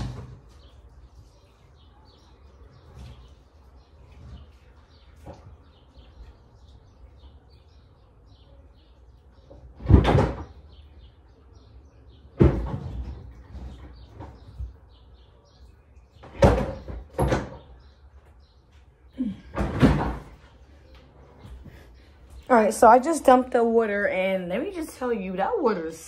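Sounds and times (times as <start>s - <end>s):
household knocks and bangs: 9.8s - 10.6s, 19.5s - 20.4s.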